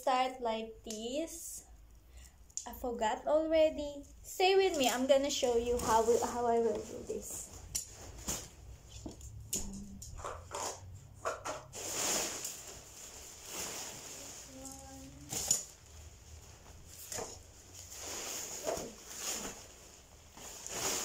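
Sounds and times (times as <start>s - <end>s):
tent fabric rustling: 5.2s - 8.8s, 11.7s - 21.0s.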